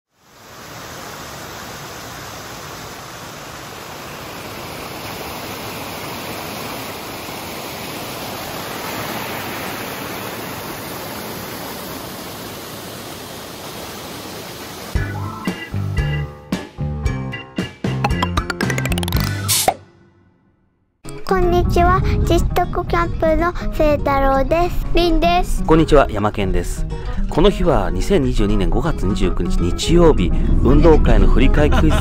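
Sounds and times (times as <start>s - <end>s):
river water rushing: 0.2s - 15.0s.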